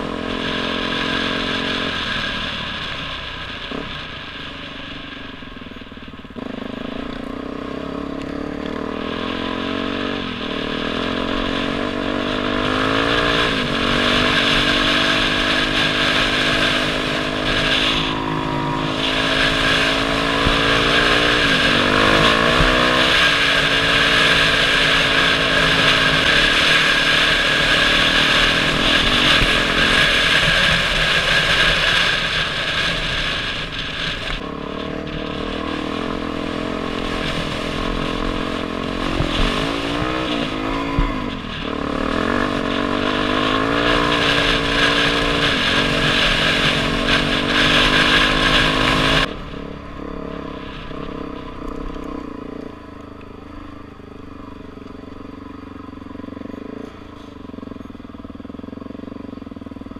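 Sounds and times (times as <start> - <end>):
dirt bike engine revving: 0.0 - 4.7, 6.2 - 52.9.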